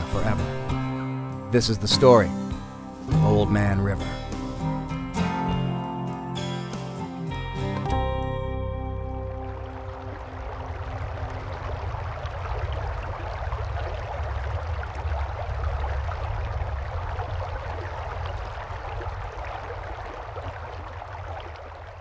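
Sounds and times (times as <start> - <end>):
river water rushing: 9.1 - 22.0.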